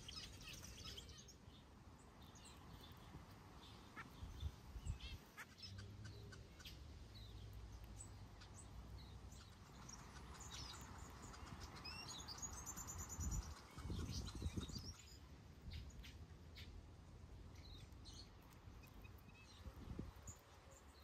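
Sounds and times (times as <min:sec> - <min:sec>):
finches chirping: 0:02.2 - 0:16.8.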